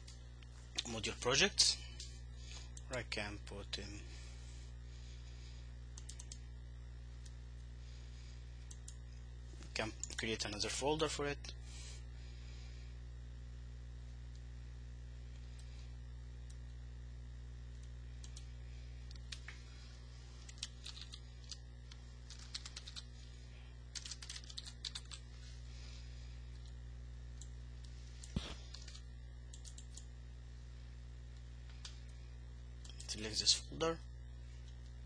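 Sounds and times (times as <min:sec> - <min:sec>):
steady low hum: 0:00.0 - 0:35.0
computer keyboard typing: 0:20.4 - 0:21.6, 0:22.2 - 0:23.1, 0:23.9 - 0:25.2, 0:28.2 - 0:30.0.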